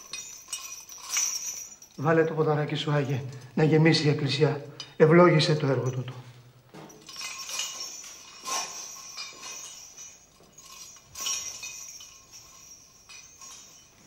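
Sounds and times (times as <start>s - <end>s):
light clinks with ringing tone: 0.0s - 2.4s, 4.6s - 5.0s, 5.8s - 14.0s.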